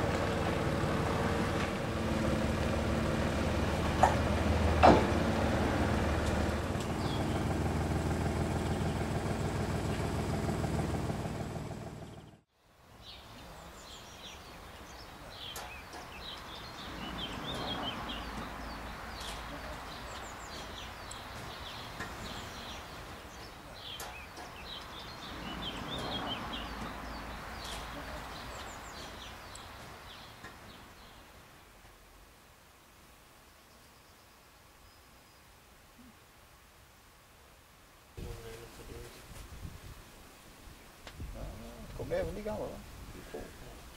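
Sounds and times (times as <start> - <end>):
birds chirping: 0.0 - 12.4, 13.0 - 31.7
forklift engine running: 0.0 - 12.4.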